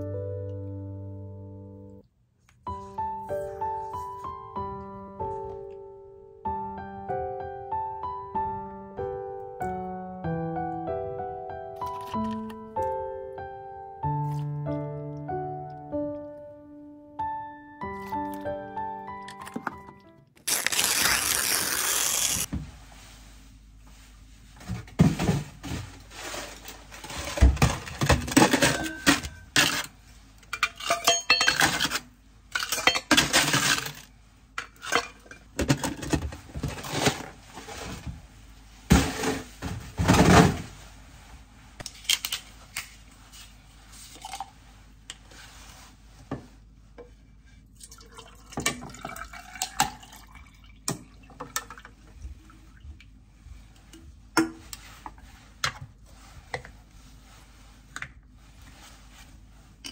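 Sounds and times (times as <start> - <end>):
dishes and cutlery clinking: 30.5 - 33.9.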